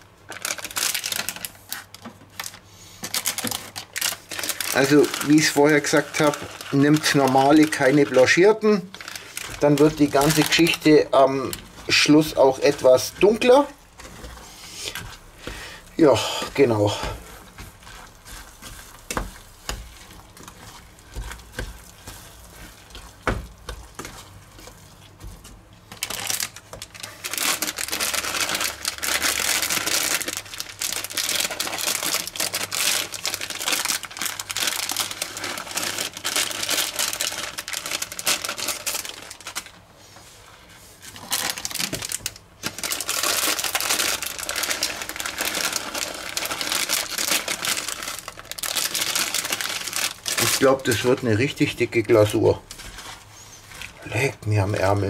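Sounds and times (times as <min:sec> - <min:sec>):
plastic bags crinkling: 0:00.0 - 0:39.9, 0:41.0 - 0:55.0
wooden spoon scraping a saucepan: 0:09.4 - 0:15.6, 0:16.4 - 0:25.9, 0:52.6 - 0:54.1.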